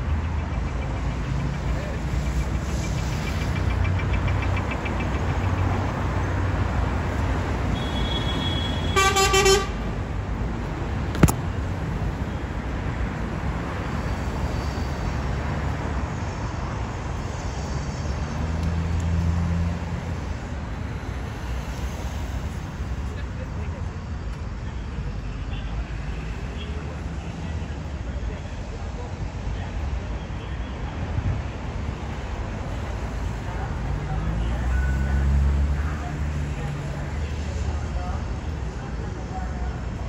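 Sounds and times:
street traffic engines: 0.0s - 40.0s
vehicle horn honk: 7.8s - 9.8s
sharp click: 11.1s - 11.5s.

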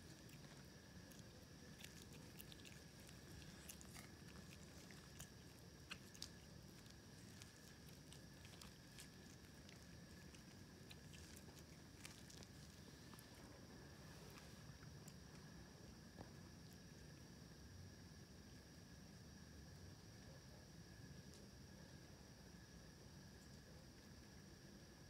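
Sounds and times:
kitten chewing food: 0.0s - 17.6s.

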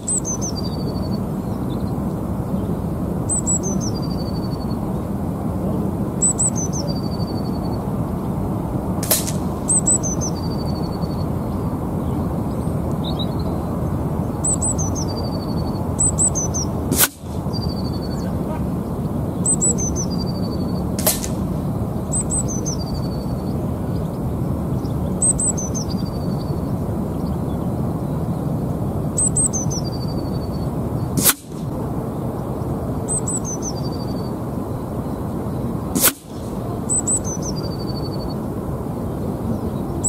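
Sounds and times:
low wind rumble: 0.0s - 40.0s
songbird singing: 0.0s - 40.0s
air rifle shots: 9.0s - 10.0s, 16.9s - 17.6s, 21.0s - 21.6s, 31.2s - 31.7s, 36.0s - 36.6s.

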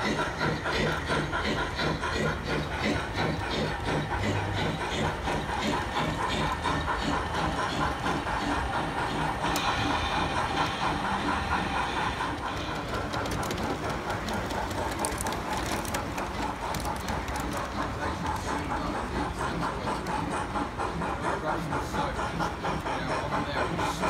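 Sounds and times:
model train running: 0.0s - 24.0s
hall noise: 2.0s - 20.6s.

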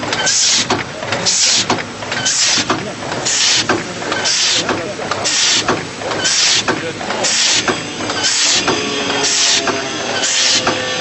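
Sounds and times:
machine mechanism clattering: 0.0s - 10.9s
short sharp hiss: 3.3s - 3.7s, 6.3s - 6.7s.

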